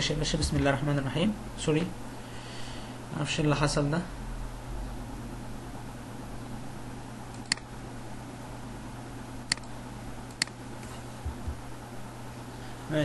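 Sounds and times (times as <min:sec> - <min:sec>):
low background hum: 0:00.0 - 0:13.0
computer mouse clicks: 0:07.3 - 0:07.7, 0:09.5 - 0:10.6.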